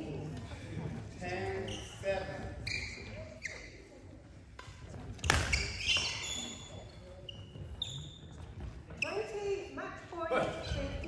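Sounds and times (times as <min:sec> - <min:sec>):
shoes squeaking on wooden floor: 0:01.2 - 0:04.0, 0:04.9 - 0:09.6.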